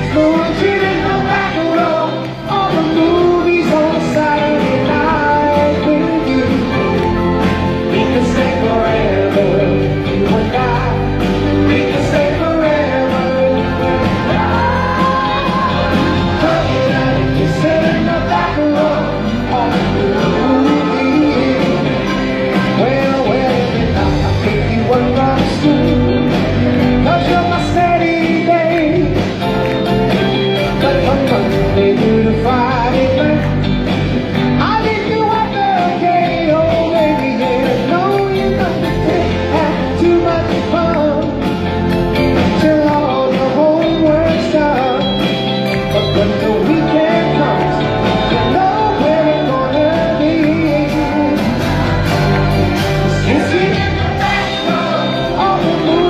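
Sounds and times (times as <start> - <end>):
bass: 0.0 - 56.0
drums: 0.0 - 56.0
electric guitar: 0.0 - 56.0
keyboards: 0.0 - 56.0
group singing soul-pop song: 11.7 - 25.7, 53.1 - 56.0.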